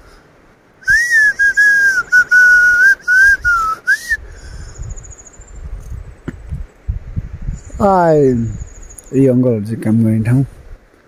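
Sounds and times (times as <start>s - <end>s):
person whistling a tune: 0.8s - 4.2s.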